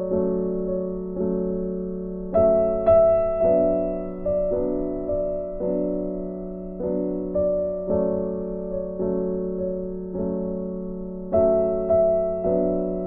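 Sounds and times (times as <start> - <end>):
slow piano music: 0.0 - 13.0.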